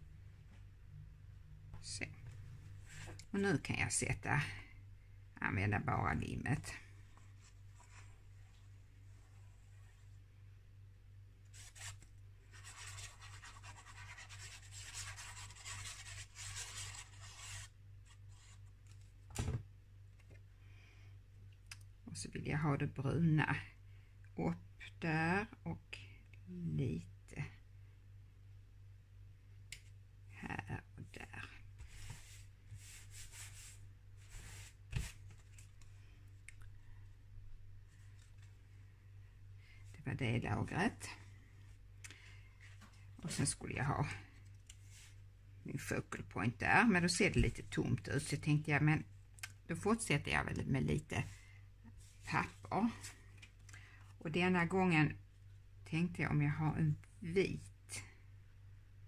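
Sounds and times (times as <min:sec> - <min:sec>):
low steady hum: 0:00.0 - 0:59.0
paper swishes: 0:31.8 - 0:35.8.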